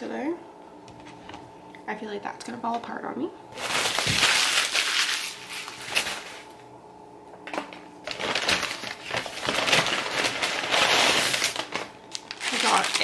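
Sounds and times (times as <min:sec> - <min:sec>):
paper bag and wrappers rustling: 0:03.6 - 0:06.6, 0:08.0 - 0:13.0.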